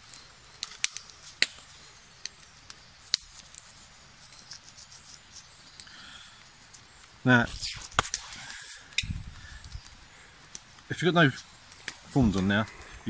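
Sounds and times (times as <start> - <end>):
bark snapping and cracking: 0.1 - 3.7, 4.4 - 13.0.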